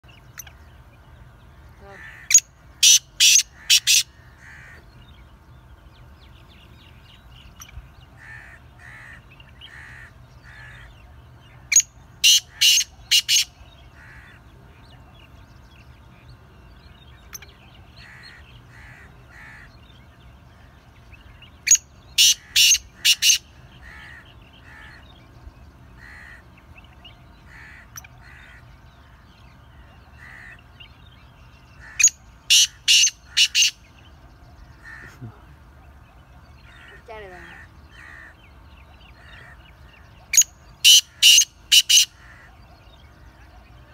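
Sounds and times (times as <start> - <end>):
faint bird calls: 1.6 - 5.3, 6.6 - 15.9, 16.9 - 43.9
francolin harsh grating call: 22.2 - 25.0, 31.8 - 33.8, 40.8 - 42.4.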